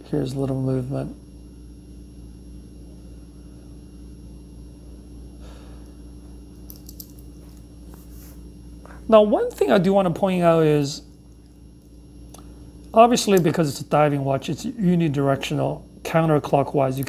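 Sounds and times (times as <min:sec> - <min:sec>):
low hum: 0:00.0 - 0:17.0
soft rustle: 0:07.4 - 0:08.5.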